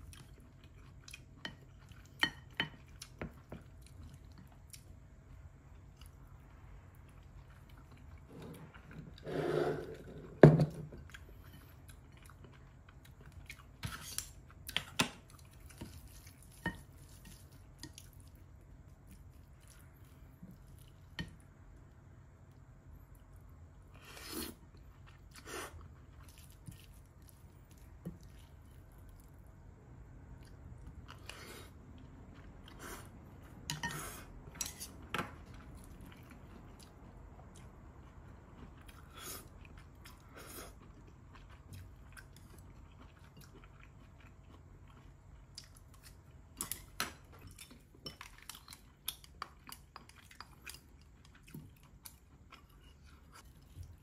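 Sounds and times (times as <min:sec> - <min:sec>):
chewing: 0:34.9 - 0:54.0.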